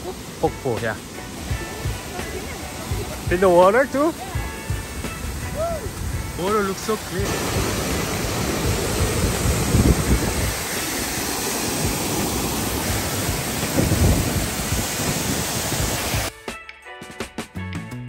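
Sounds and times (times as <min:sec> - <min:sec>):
waterfall roaring: 0:00.0 - 0:16.3.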